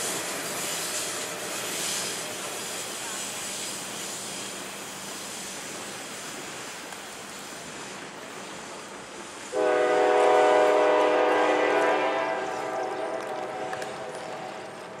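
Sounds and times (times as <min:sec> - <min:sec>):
train cars rolling on rails: 0:00.0 - 0:15.0
locomotive air horn chord: 0:09.5 - 0:14.8.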